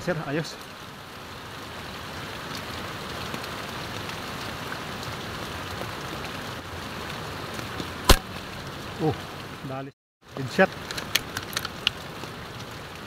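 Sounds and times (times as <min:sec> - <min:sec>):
heavy rain on water: 0:00.0 - 0:13.0
air rifle shot: 0:08.1 - 0:08.4.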